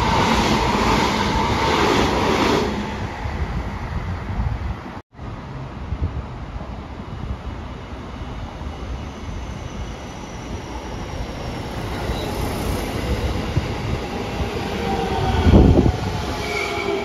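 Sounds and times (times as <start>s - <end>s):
electric train running: 11.2s - 15.3s.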